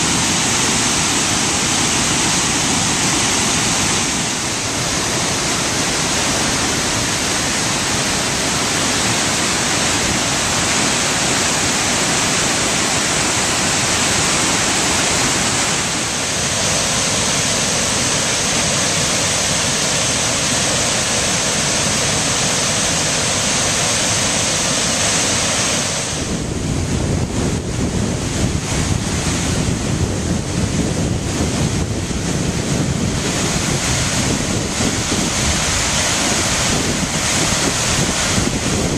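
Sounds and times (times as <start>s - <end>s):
waterfall rushing: 0.0s - 38.9s
wind buffeting microphone: 26.0s - 38.9s.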